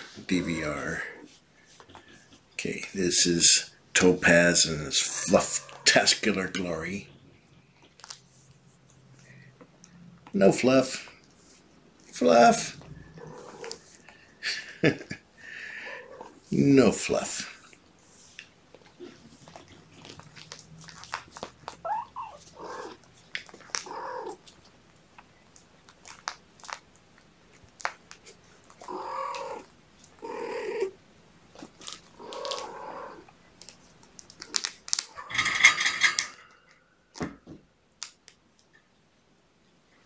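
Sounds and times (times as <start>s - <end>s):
kittens mewing: 5.0s - 6.0s, 12.9s - 14.0s, 15.6s - 16.5s, 21.6s - 24.6s, 28.7s - 31.0s, 32.0s - 33.4s
kitten harsh cry: 21.8s - 23.0s, 23.8s - 24.4s
handling clicks and rustles: 22.4s - 30.2s, 33.5s - 37.4s.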